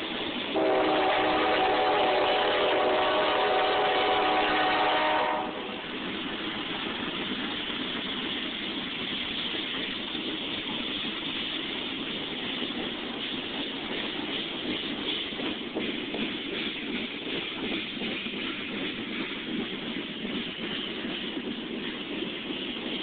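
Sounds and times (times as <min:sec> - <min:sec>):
freight cars rolling on track: 0:00.0 - 0:23.0
locomotive horn: 0:00.6 - 0:05.8.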